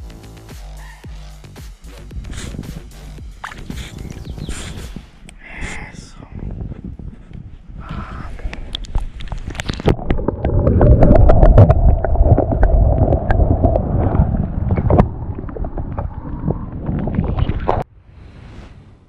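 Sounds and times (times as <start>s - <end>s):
underwater water sloshing: 8.8s - 17.8s.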